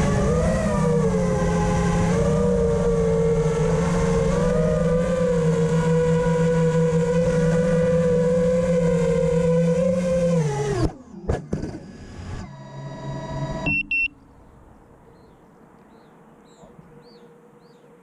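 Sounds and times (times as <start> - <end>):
drone motors whining: 0.0 - 14.2
rough humming: 0.0 - 18.0
high double beep: 13.7 - 14.2
faint birds chirping: 13.7 - 18.0.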